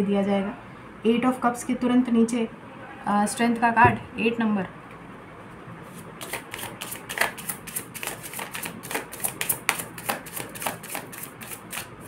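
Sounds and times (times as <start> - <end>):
cards shuffled by hand: 6.2 - 12.0.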